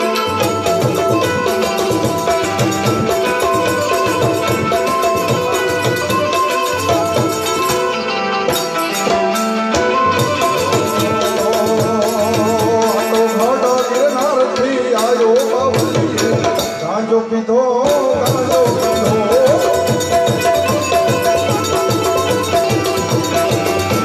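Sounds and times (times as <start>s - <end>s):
hand drum strokes: 0.0s - 16.7s, 17.9s - 24.0s
harmonium notes: 0.0s - 24.0s
man singing: 10.4s - 22.0s.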